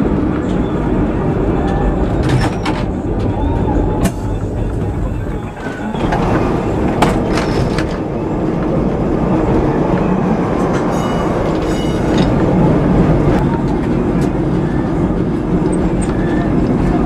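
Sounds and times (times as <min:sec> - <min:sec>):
tram wheels and motor rumbling: 0:00.0 - 0:17.0
high ringing squeal: 0:10.9 - 0:12.3.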